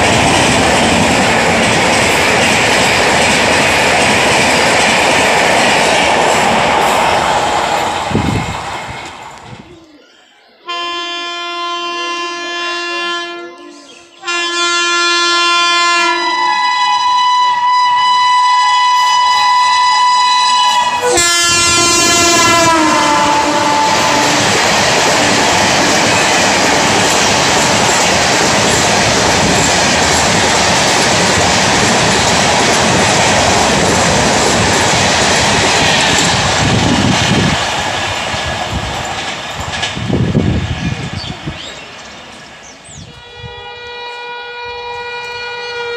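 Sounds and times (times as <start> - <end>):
train wheels roaring on rail: 0.0 - 9.7, 12.4 - 45.9
locomotive horn blasts: 10.7 - 24.4, 43.1 - 45.9.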